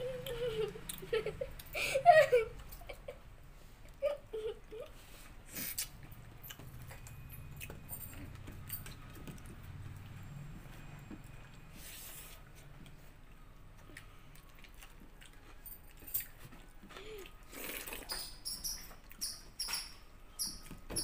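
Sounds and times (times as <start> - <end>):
person giggling: 0.0 - 3.2, 3.9 - 5.0.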